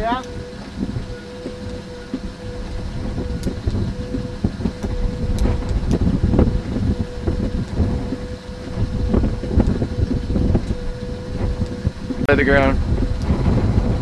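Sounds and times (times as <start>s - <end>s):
faint steady hum: 0.0s - 14.0s
low rumble on microphone: 0.0s - 14.0s.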